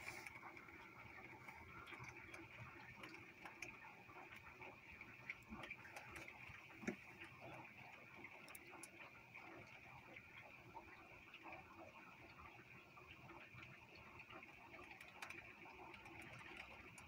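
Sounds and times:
raindrops ticking on window glass: 0.0s - 17.0s.

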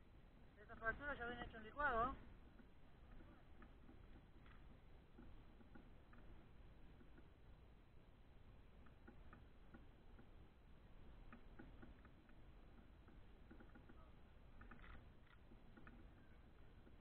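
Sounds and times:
faint ticks: 2.5s - 7.5s, 8.7s - 17.0s.

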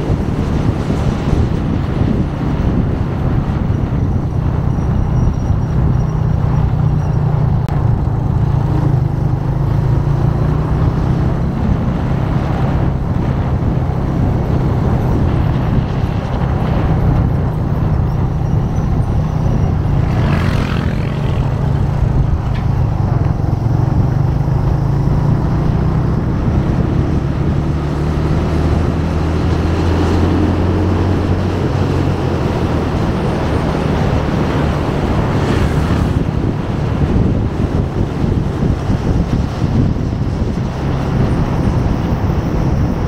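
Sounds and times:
motorcycle engine running: 0.0s - 43.0s
wind and road noise: 0.0s - 43.0s.

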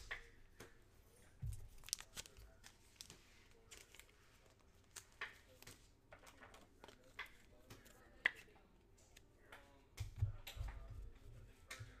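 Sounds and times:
trading cards and wrappers rustling: 1.3s - 9.3s.

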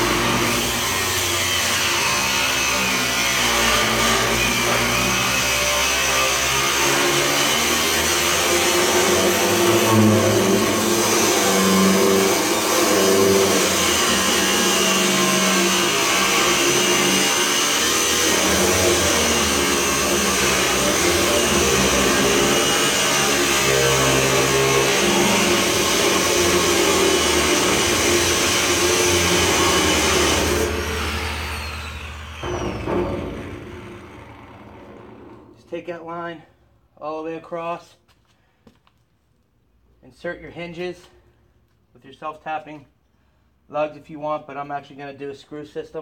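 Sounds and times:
angle grinder cutting steel: 0.0s - 35.6s
grinder disc winding down: 8.0s - 35.6s.

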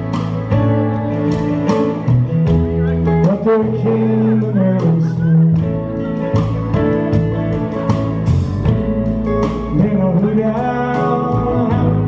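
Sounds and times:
guitar accompaniment: 0.0s - 12.0s
man singing: 2.8s - 6.7s, 9.4s - 12.0s.

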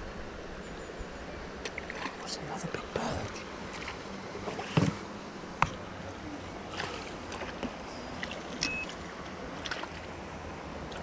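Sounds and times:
fish splashing at water surface: 6.6s - 11.0s.

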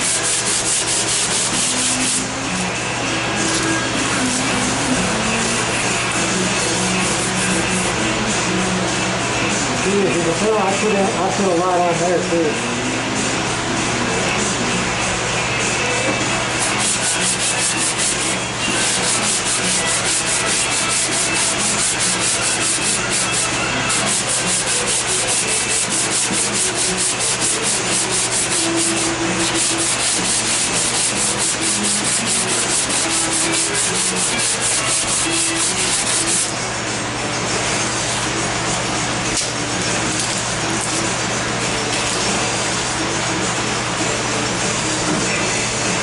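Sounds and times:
sandpaper rubbing on filler: 0.0s - 2.3s, 6.9s - 7.7s, 16.6s - 36.5s.

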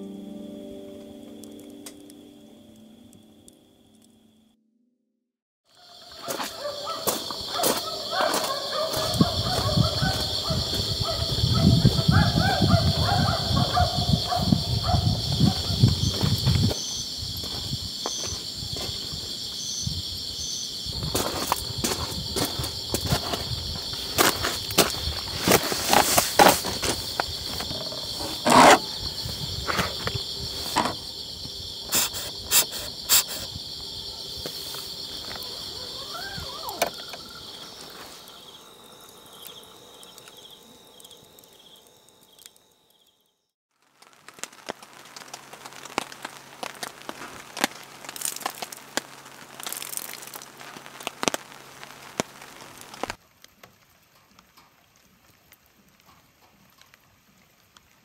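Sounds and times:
night insects trilling: 5.7s - 53.2s
crackling and clicking: 43.8s - 58.0s.

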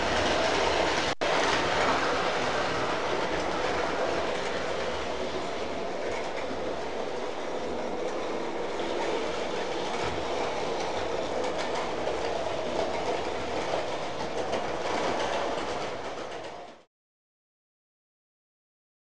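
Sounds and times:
toy train wheels clattering on rails: 0.0s - 16.8s.

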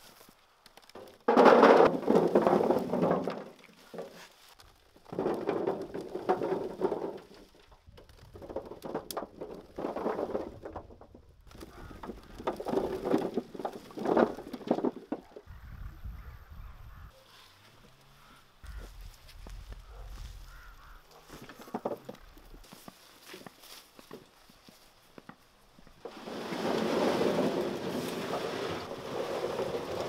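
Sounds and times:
potatoes rattling into metal tray: 5.1s - 7.5s.

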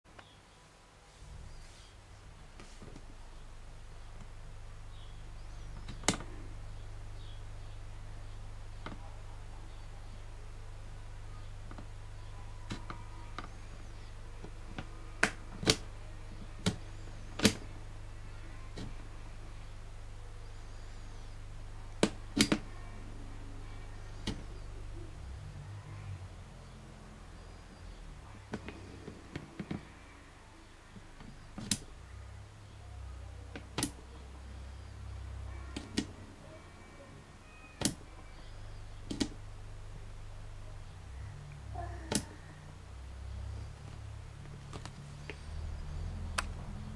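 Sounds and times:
steady low hum: 0.4s - 46.9s
sharp clicks: 33.5s - 34.0s, 37.8s - 38.0s, 39.0s - 39.4s, 46.2s - 46.7s
sharp clicks or snaps: 42.1s - 42.3s, 46.3s - 46.6s.

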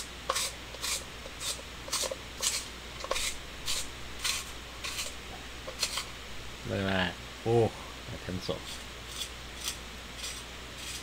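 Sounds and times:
pencil sharpener scraping rasp: 0.0s - 5.1s, 5.7s - 6.1s, 8.6s - 11.0s.

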